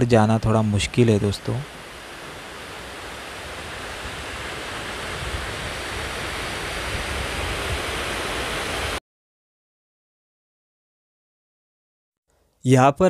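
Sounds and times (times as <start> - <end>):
waterfall rushing: 0.5 - 9.0.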